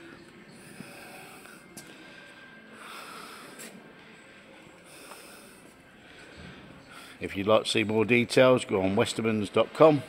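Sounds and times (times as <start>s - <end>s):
soft breathing: 0.0s - 7.3s.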